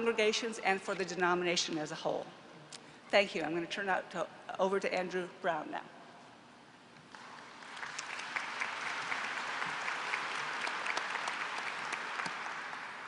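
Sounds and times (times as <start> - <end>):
audience applauding: 7.1 - 13.0.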